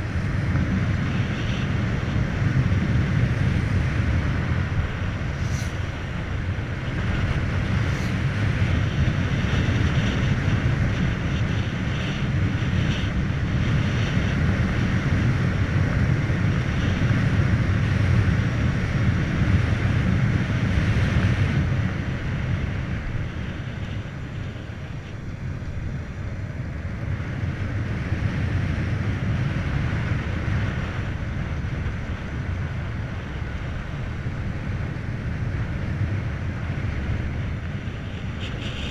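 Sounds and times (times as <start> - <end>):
motorcycle tyre noise: 0.0 - 38.9
wind rushing over microphone: 0.0 - 38.9.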